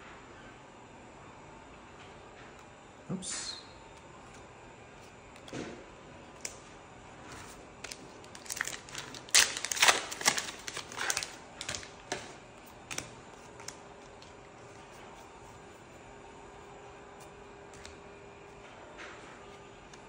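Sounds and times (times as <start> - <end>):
trading cards clicking and snapping: 4.0 - 6.6, 7.3 - 14.4, 17.7 - 18.0.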